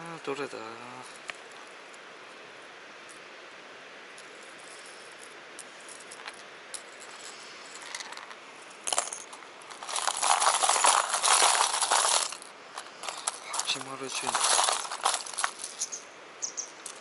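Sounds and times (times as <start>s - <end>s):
plastic lures clattering in tackle box: 8.9s - 15.9s.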